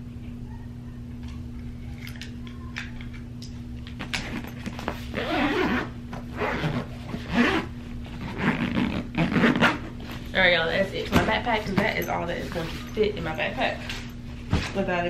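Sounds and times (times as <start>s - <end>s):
steady low hum: 0.0s - 15.0s
zipper pulls rasping: 4.1s - 10.1s.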